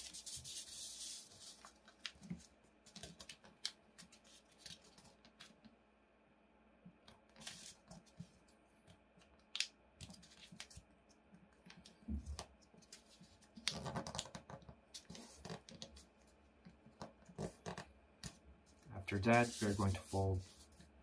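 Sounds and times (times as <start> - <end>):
paper crackling and rustling: 0.0 - 5.6.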